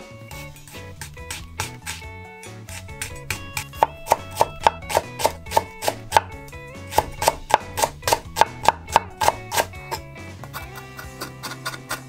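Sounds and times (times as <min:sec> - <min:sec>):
background music: 0:00.0 - 0:12.0
knife chopping on cutting board: 0:00.4 - 0:12.0.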